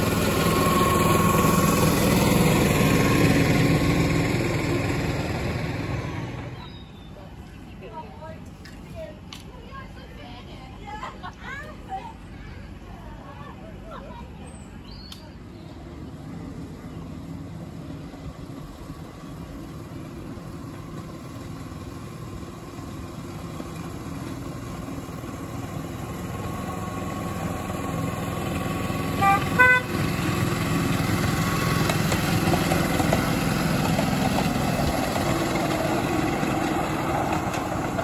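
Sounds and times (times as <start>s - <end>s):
diesel locomotive engine: 0.0s - 38.0s
locomotive horn toots: 29.1s - 30.2s.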